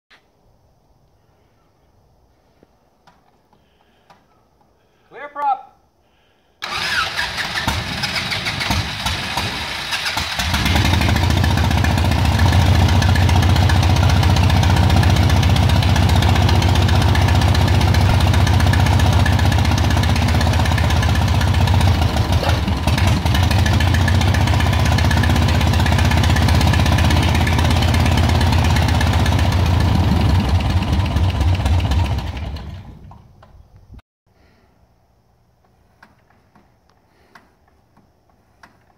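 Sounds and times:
aircraft engine running rough: 6.6 - 33.2.

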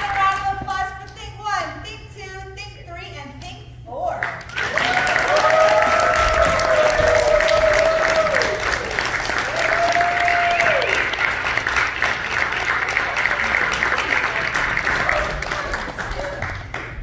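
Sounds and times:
audience applauding: 4.4 - 17.0.

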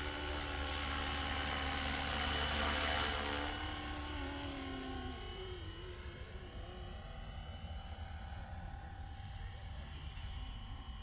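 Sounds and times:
rc helicopter flying past: 0.0 - 11.0.

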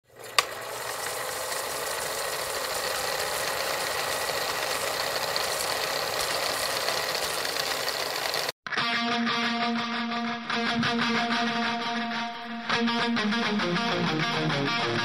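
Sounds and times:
film projector clattering: 0.0 - 8.6
guitar music: 8.7 - 15.0.

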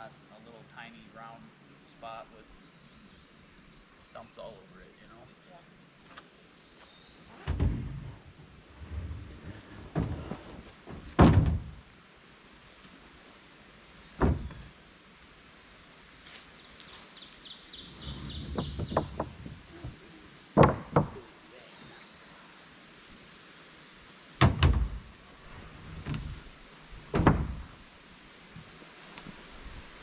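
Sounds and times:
wooden boards clunking onto pile: 9.4 - 11.8, 20.6 - 21.2, 24.4 - 25.1, 27.1 - 27.8.

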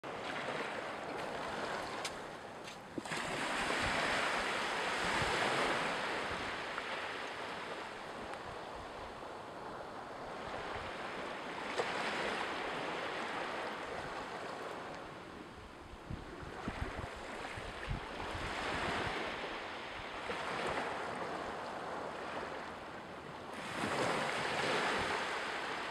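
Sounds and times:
sea waves washing on shore: 0.1 - 25.9.

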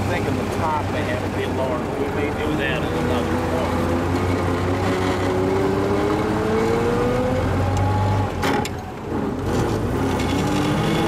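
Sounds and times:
car engine whine rising: 2.2 - 11.0.

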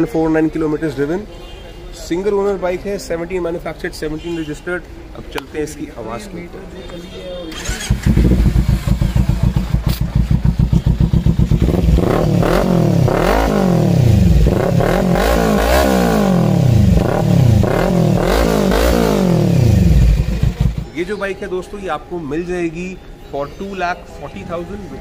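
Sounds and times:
motorcycle engine revving: 7.5 - 21.0
motorcycle engine idling: 7.6 - 15.1, 16.5 - 21.0.

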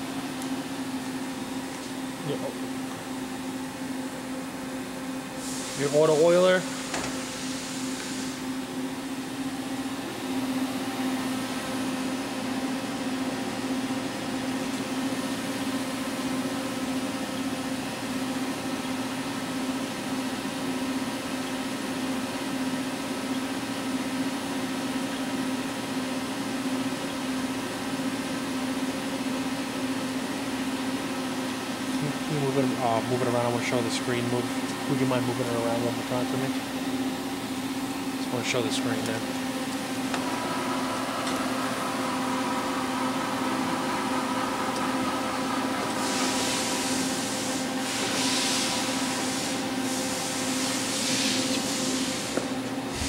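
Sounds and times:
machine electrical hum: 0.0 - 53.0
fan-like hiss: 5.2 - 8.7, 38.2 - 53.0.

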